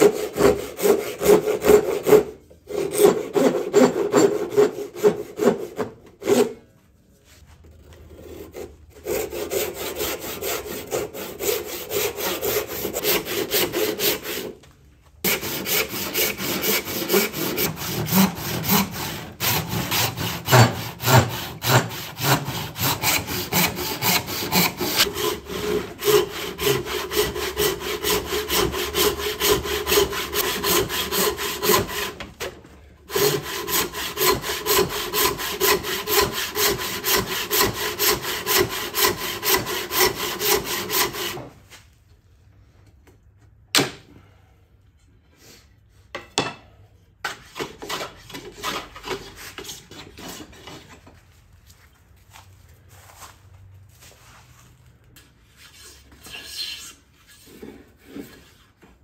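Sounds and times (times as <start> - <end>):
hand saw rasping through wood: 0.0 - 6.6, 8.1 - 14.5, 15.2 - 41.5, 47.3 - 51.0.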